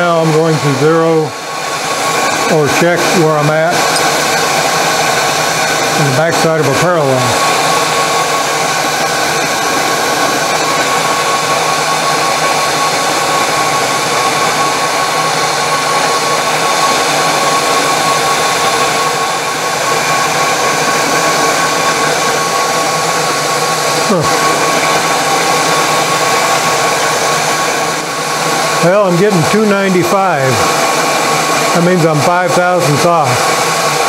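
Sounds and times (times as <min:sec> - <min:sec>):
milling machine motor whine: 0:00.0 - 0:34.0.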